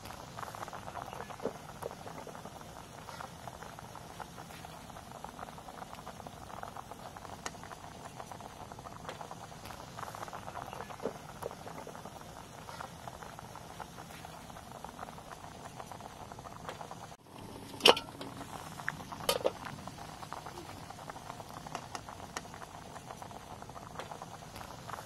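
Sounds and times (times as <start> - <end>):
pot bubbling and crackling: 0.0 - 25.0
pot lid clanking: 17.6 - 18.4, 19.2 - 19.7.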